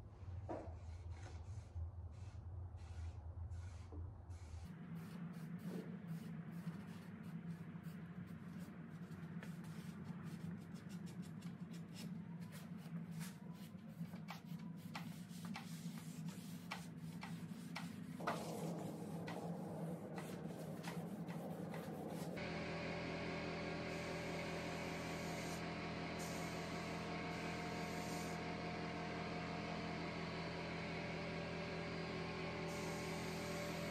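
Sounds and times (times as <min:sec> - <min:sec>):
spray gun hissing: 0:23.8 - 0:28.4, 0:32.6 - 0:33.9.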